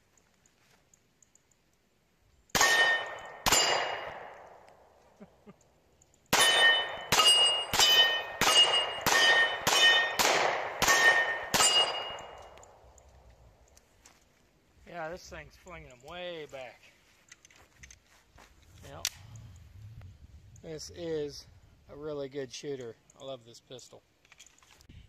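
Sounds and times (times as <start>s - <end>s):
pistol shots: 2.5s - 4.6s, 6.3s - 12.8s
steel targets clanging: 2.6s - 4.0s, 6.3s - 12.6s.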